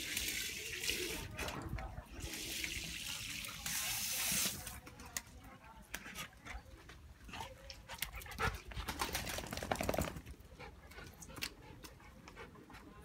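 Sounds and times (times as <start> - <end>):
dog panting and snuffling: 5.9 - 9.2, 10.4 - 13.0.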